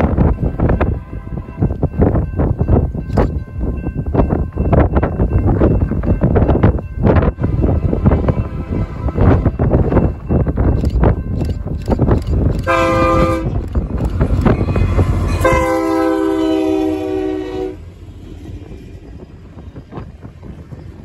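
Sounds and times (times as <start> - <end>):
locomotive air horn chord: 12.6 - 13.6, 15.0 - 17.9.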